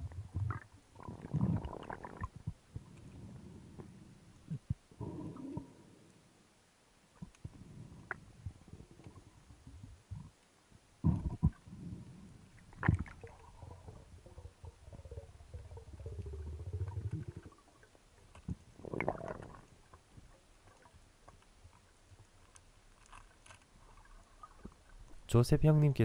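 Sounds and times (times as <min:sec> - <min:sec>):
gurgle of bubbles: 0:00.0 - 0:03.5, 0:11.0 - 0:20.1
low bubbling rumble: 0:00.0 - 0:05.8, 0:11.0 - 0:20.3.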